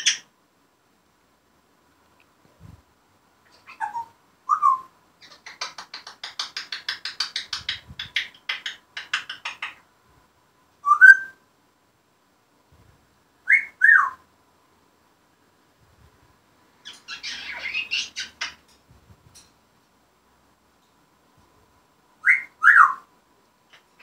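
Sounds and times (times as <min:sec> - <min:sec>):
parrot clicking chatter: 0:05.2 - 0:09.8
parrot whistling: 0:13.5 - 0:14.2, 0:17.1 - 0:18.3, 0:22.2 - 0:23.0.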